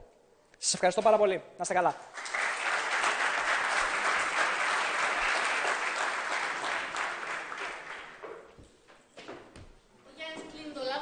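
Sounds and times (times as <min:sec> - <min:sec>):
audience applauding: 0:02.1 - 0:08.3.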